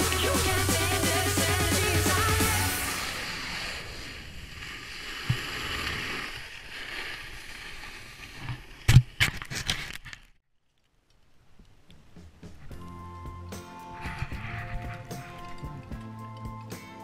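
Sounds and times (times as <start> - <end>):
background music: 0.0 - 3.2, 12.4 - 17.0
wind and snow rushing: 2.2 - 9.7.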